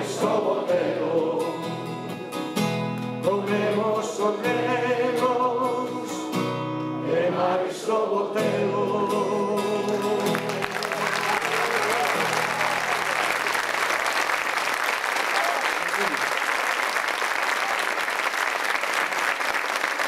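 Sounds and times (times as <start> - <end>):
man singing: 0.0 - 2.1, 3.2 - 6.4, 7.0 - 10.7
acoustic guitar: 0.0 - 13.8.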